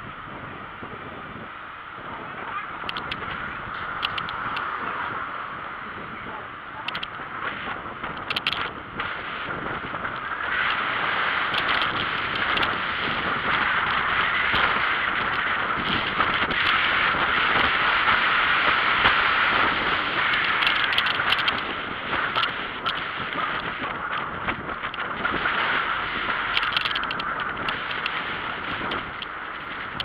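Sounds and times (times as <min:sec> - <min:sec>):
tyres rolling on asphalt: 0:00.0 - 0:30.0
wind across microphone: 0:00.0 - 0:30.0
small clicks and rattles: 0:02.8 - 0:04.7, 0:06.8 - 0:09.1, 0:10.0 - 0:17.7, 0:19.0 - 0:30.0.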